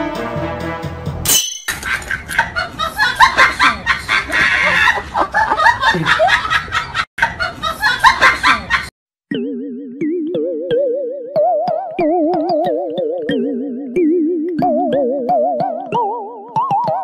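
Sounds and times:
person giggling and snickering: 1.8s - 6.5s.

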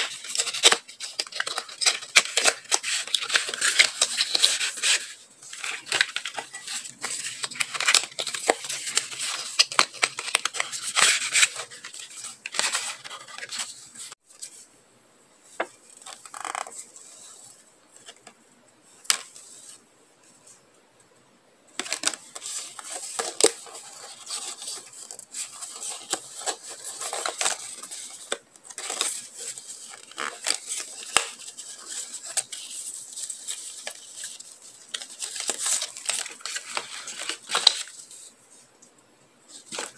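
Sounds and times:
paper cards rustling: 0.0s - 14.6s, 21.8s - 38.3s, 39.5s - 39.9s.

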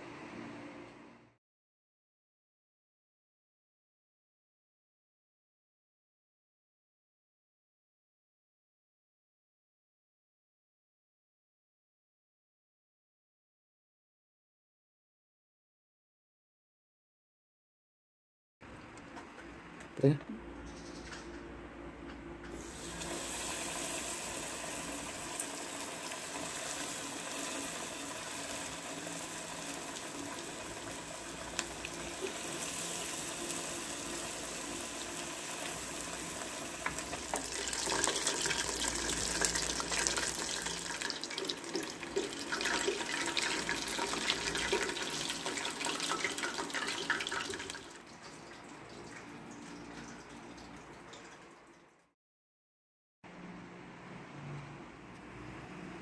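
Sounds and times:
chicken deep-frying in oil: 22.5s - 52.1s
oil crackling and popping: 25.2s - 48.0s.

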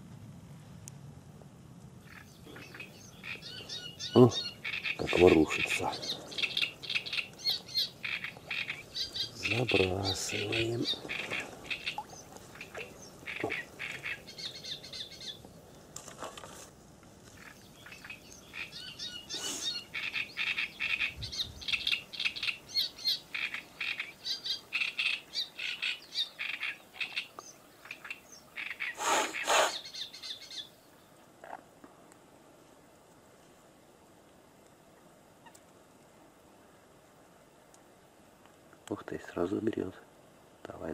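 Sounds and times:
songbird chattering chirps: 2.0s - 15.5s, 17.3s - 31.1s
harsh bird calls: 2.0s - 15.7s, 17.4s - 31.0s.

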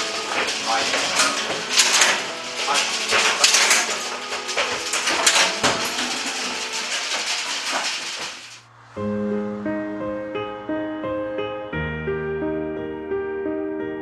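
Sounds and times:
goat hooves clattering on metal grate: 0.0s - 8.6s
piano music: 0.0s - 14.0s.

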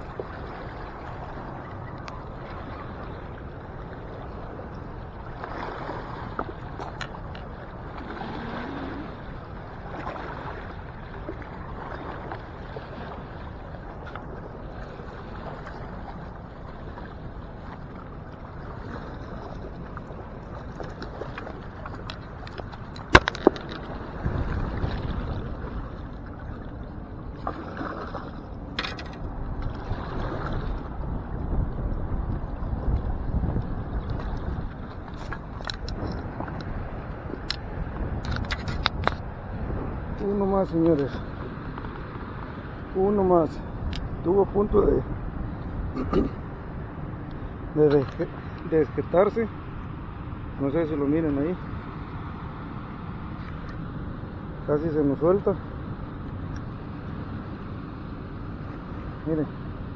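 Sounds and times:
wind buffeting microphone: 0.0s - 59.9s
river current rushing: 5.3s - 13.6s.

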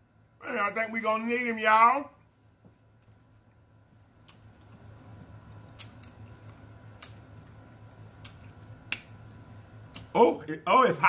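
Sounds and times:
mouth clicks and lip smacks: 5.7s - 7.3s, 8.2s - 9.2s, 9.8s - 10.1s.

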